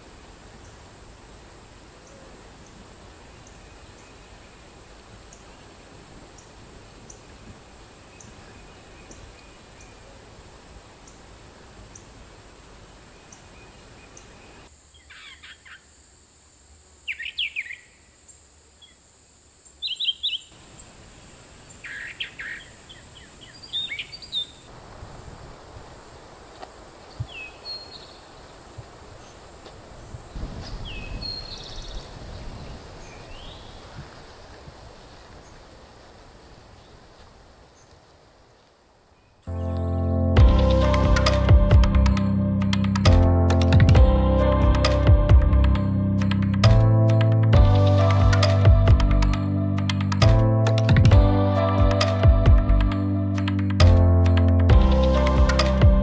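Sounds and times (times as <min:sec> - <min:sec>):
outdoor background hiss: 0:00.0 - 0:56.0
birds chirping: 0:02.0 - 0:10.3, 0:13.0 - 0:15.8, 0:21.6 - 0:24.7, 0:27.0 - 0:34.2.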